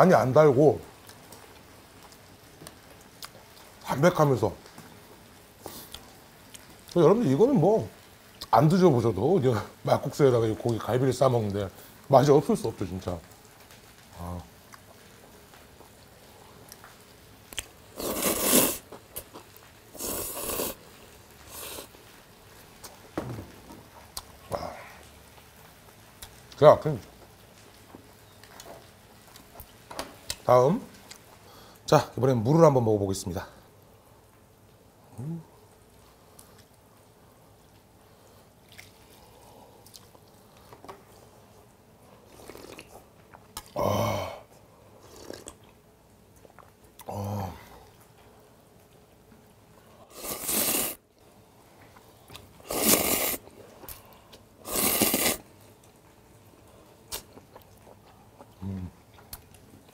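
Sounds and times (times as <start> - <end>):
quiet chewing: 5.6 - 7.0, 14.7 - 20.8, 23.9 - 31.8, 36.0 - 43.8, 44.4 - 59.9
person slurping noodles: 18.0 - 18.8, 20.0 - 20.8, 21.5 - 21.9, 42.3 - 42.9, 45.0 - 45.6, 50.1 - 51.0, 52.6 - 54.0, 54.6 - 55.4.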